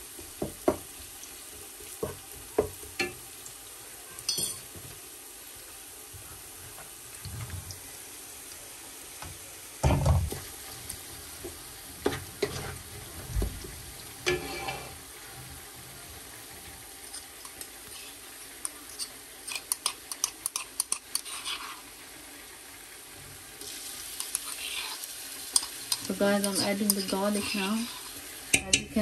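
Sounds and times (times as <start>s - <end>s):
onions sizzling in a pot: 0.0s - 29.0s
stirring clicks and scrapes: 17.1s - 21.9s, 24.2s - 28.8s
utensils knocking cookware: 28.5s - 29.0s.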